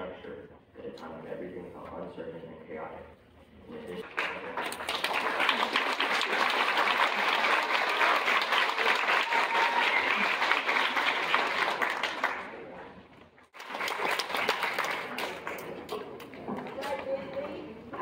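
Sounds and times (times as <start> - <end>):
audience applause: 4.0 - 12.8, 13.5 - 16.0.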